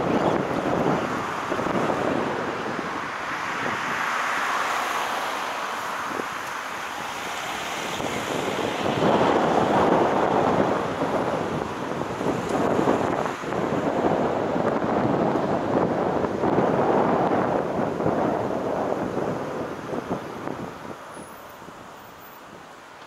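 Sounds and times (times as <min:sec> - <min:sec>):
car road and wind noise: 0:00.0 - 0:23.0.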